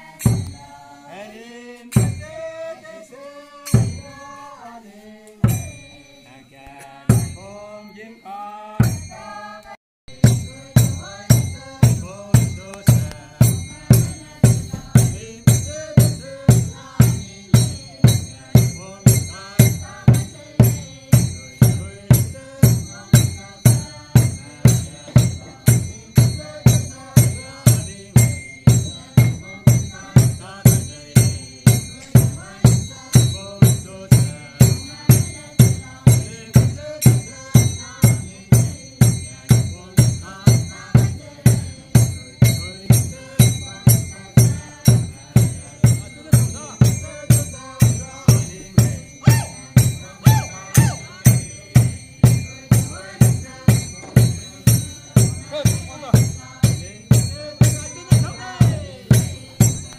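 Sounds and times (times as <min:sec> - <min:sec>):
drum beating steadily: 0:00.0 - 0:00.9, 0:01.8 - 0:02.8, 0:03.6 - 0:04.5, 0:05.4 - 0:06.0, 0:07.0 - 0:07.7, 0:08.8 - 0:09.4, 0:10.1 - 0:59.9
dancers chanting: 0:34.2 - 0:55.5.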